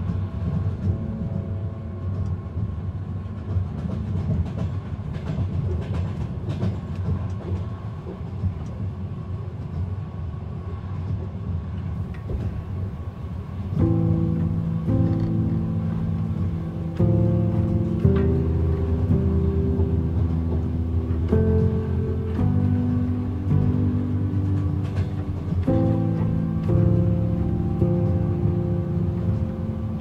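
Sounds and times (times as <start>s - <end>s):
piano piece: 0.0s - 4.1s, 12.2s - 30.0s
music: 0.0s - 8.8s, 12.0s - 30.0s
train rumble inside carriage: 0.0s - 30.0s
wheels clattering on rails: 0.0s - 30.0s.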